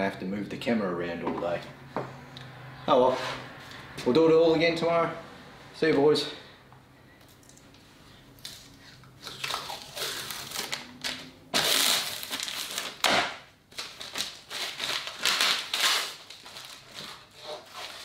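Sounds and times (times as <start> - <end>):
gloves crinkling and rustling: 8.4 - 18.0.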